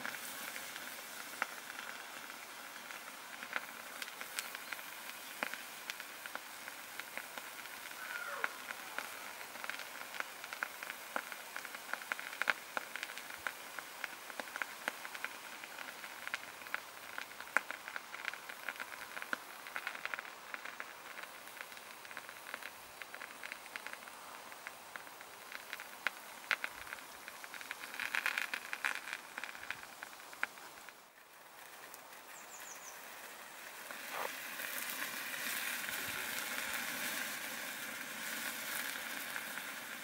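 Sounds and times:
mixture crackling and popping: 0.0 - 40.0.

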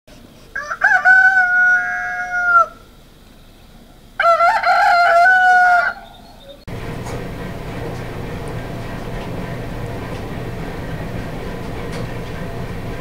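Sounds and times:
steady low rumble: 6.7 - 13.0.

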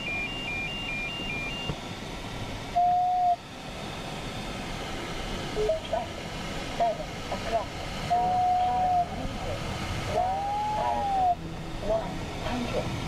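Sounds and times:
single steady beep: 0.0 - 1.8
two-tone alternating beep: 0.0 - 1.8
cockpit airflow noise: 0.4 - 13.0.

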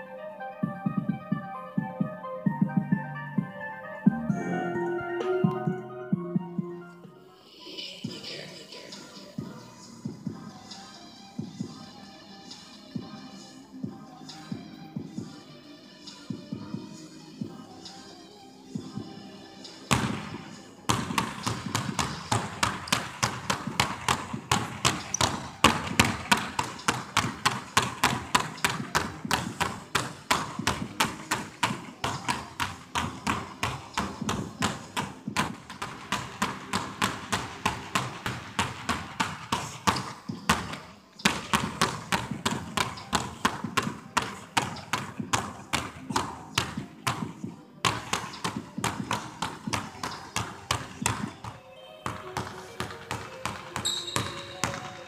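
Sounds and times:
basketballs bouncing on wooden floor: 19.9 - 55.0.

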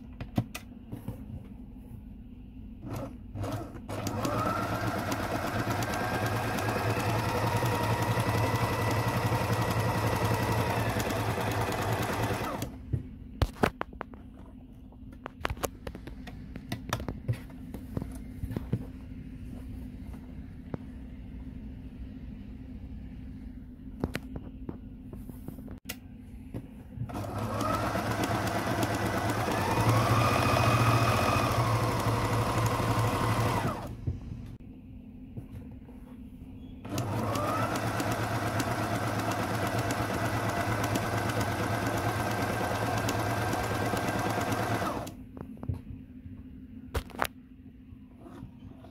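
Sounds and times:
sewing machine stitching: 2.8 - 12.8, 27.1 - 33.9, 36.8 - 45.2.

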